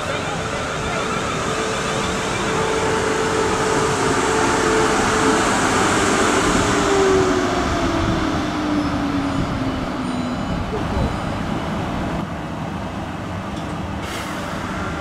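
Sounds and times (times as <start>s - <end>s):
train whine falling in pitch: 0.0s - 11.2s
train rumbling: 0.0s - 15.0s.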